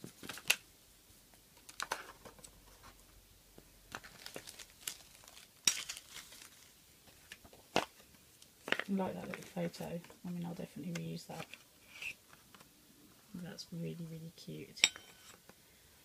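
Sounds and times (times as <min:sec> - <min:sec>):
plastic packaging crinkling: 0:03.9 - 0:10.1.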